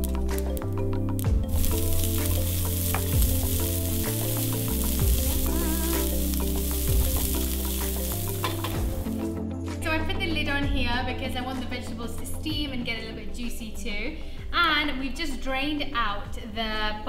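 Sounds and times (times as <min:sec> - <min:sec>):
seeds crackling in hot oil: 0:00.0 - 0:09.3
vegetables sizzling: 0:00.0 - 0:09.4
background music: 0:00.0 - 0:17.0
wooden spatula stirring: 0:01.5 - 0:09.2.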